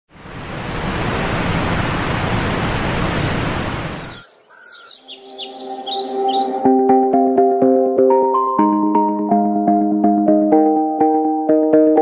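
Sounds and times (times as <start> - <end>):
waterfall rushing: 0.2 - 4.2
birds chirping: 1.0 - 6.7.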